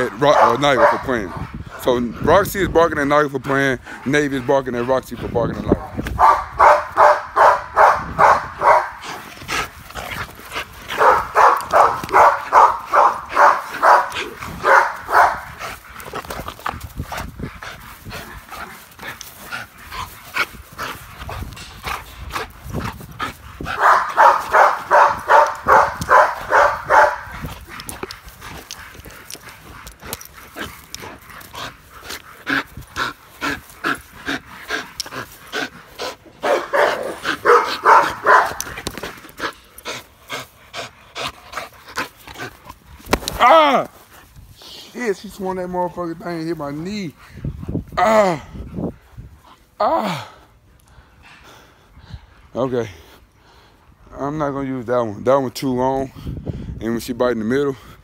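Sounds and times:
dogs barking: 0:00.0 - 0:01.6, 0:05.8 - 0:09.2, 0:10.9 - 0:16.2, 0:23.6 - 0:28.0, 0:35.5 - 0:39.6.

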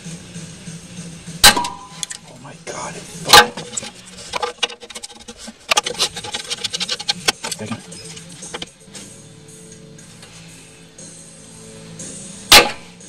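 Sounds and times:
tools clicking and scraping on metal: 0:03.3 - 0:08.8.

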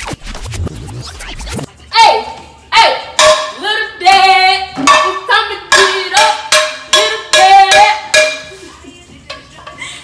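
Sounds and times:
metal frying pans clanging: 0:03.2 - 0:03.7, 0:04.7 - 0:09.9.

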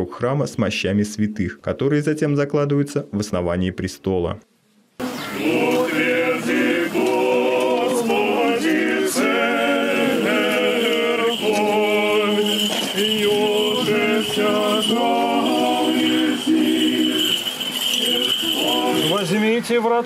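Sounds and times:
voices chanting a hymn: 0:05.0 - 0:19.8.

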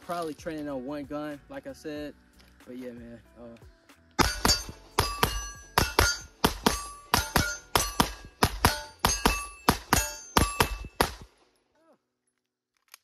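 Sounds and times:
steel targets ringing: 0:04.2 - 0:11.0
pistol shots in pairs: 0:04.2 - 0:11.4.

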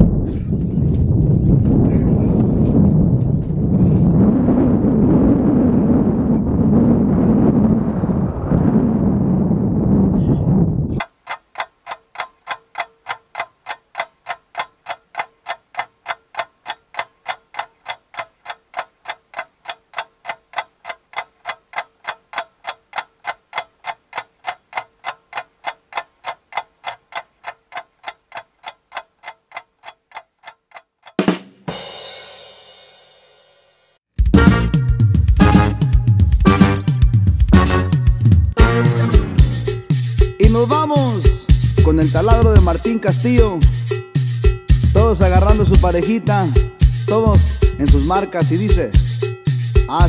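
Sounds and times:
ticking percussion beat: 0:11.0 - 0:32.8, 0:34.2 - 0:50.0.

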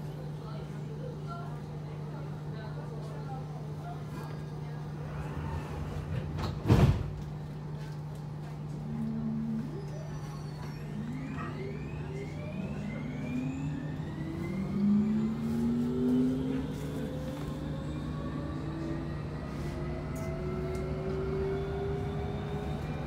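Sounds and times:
train low hum: 0:00.0 - 0:23.0
traction motors whining: 0:09.1 - 0:23.0.

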